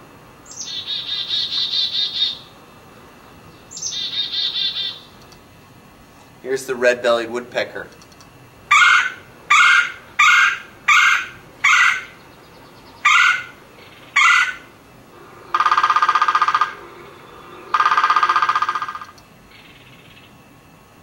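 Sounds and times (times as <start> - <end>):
woodpecker churring calls: 0.5 - 2.5, 3.6 - 5.2, 8.7 - 14.7, 15.4 - 20.3
woodpecker harsh calls: 0.5 - 2.5, 3.6 - 5.2, 8.7 - 20.3.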